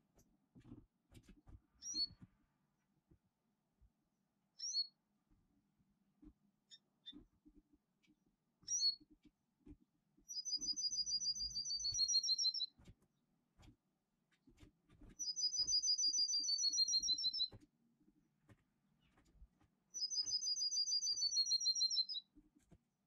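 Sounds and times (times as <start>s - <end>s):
songbird trill: 10.3s - 12.7s, 15.2s - 17.5s, 20.0s - 22.3s.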